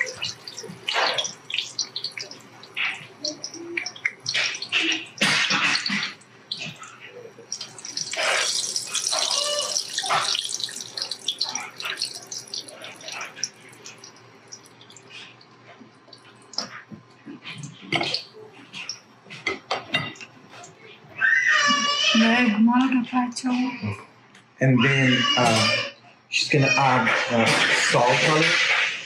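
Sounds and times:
slices sizzling in hot oil: 0.0s - 6.8s, 7.4s - 15.3s.

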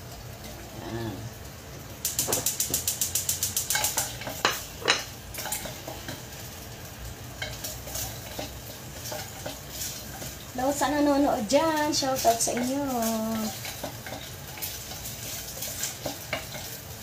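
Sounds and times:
oil sizzling: 0.0s - 17.0s
wooden spoon stirring in pot: 2.2s - 17.0s.

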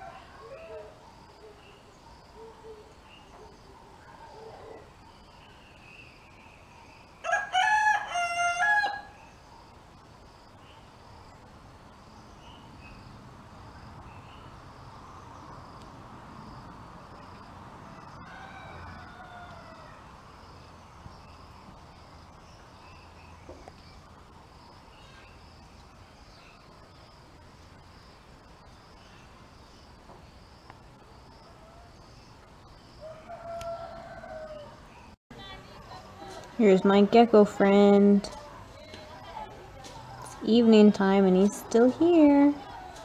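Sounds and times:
rooster crowing: 0.0s - 1.0s, 7.2s - 9.2s, 17.9s - 20.2s, 33.0s - 34.9s
insect chirping: 0.0s - 38.0s.

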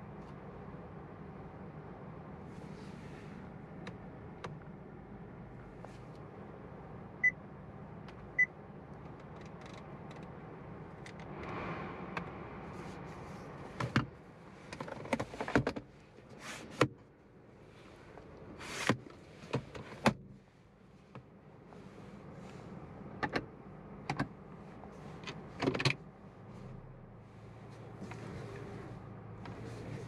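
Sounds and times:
short sliding scrapes: 16.3s - 16.8s.

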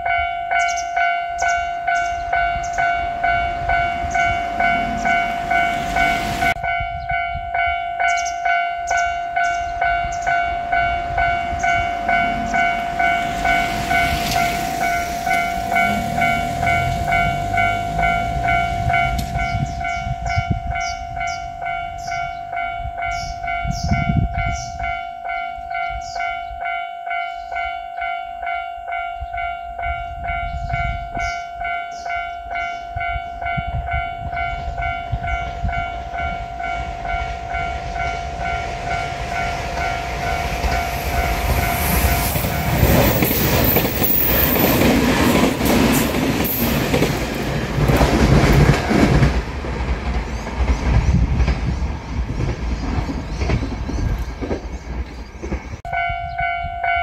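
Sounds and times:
level crossing warning bell: 0.0s - 49.2s, 55.8s - 57.0s
electric train passing: 0.0s - 57.0s
train wheel clatter: 35.1s - 55.8s.

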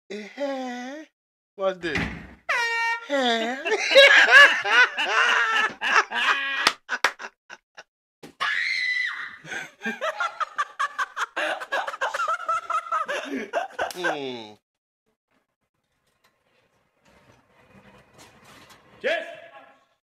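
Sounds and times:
people laughing: 2.6s - 7.8s, 9.5s - 14.6s
people screaming in fright: 8.4s - 9.7s.

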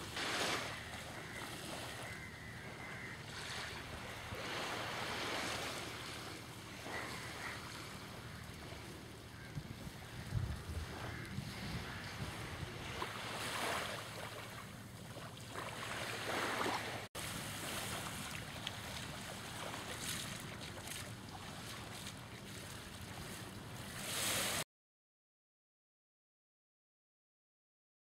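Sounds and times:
small waves washing on sand: 0.0s - 24.6s
wind on microphone: 9.5s - 13.2s.

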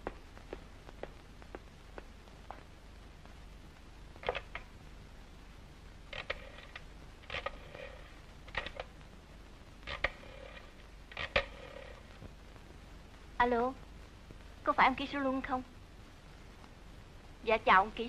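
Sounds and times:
rotary telephone dial clicking: 11.2s - 11.8s.

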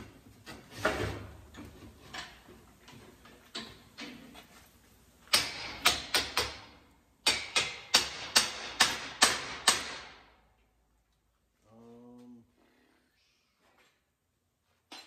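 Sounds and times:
hammer striking metal: 5.3s - 10.2s.

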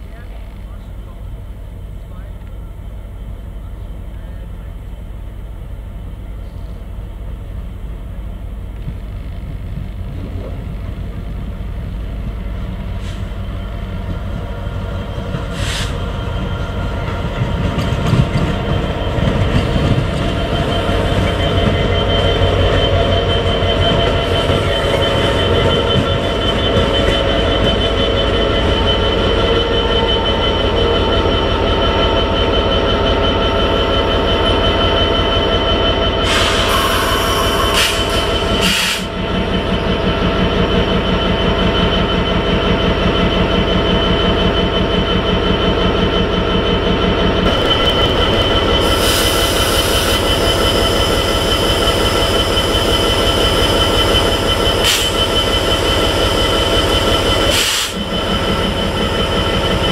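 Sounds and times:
diesel locomotive engine drone: 0.0s - 59.9s
wheels knocking on track: 17.0s - 22.0s
steady high whine: 47.4s - 59.9s.

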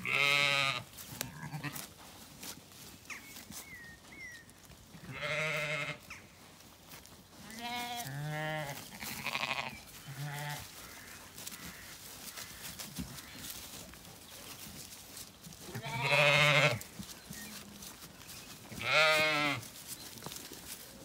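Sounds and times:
sheep and lambs bleating: 0.0s - 1.9s, 4.9s - 6.3s, 7.4s - 13.9s, 15.5s - 17.9s, 18.6s - 19.8s.

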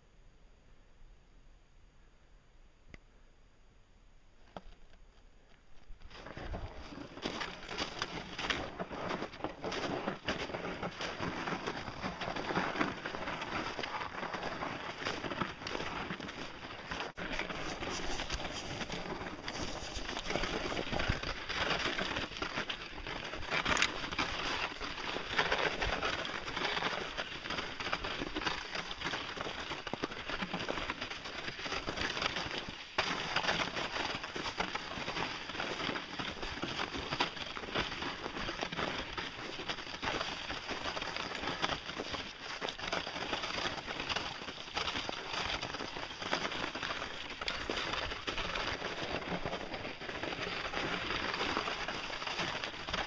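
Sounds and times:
footsteps crunching on snow: 4.4s - 53.0s
clothing rubbing microphone: 17.4s - 21.0s.

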